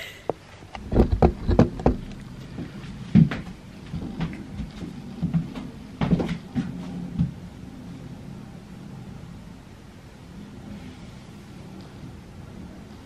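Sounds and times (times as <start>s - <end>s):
knocks and clunks of handling wardrobe: 0.8s - 7.4s.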